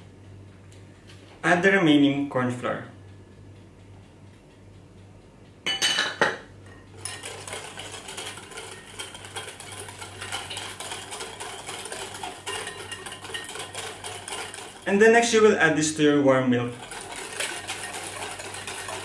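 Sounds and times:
wire whisk clinking against glass bowl: 0:07.0 - 0:15.8, 0:16.7 - 0:19.0.

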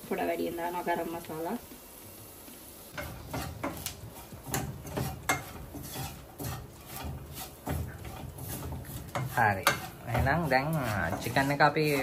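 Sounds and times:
spatula scraping a pan: 0:02.9 - 0:12.0.

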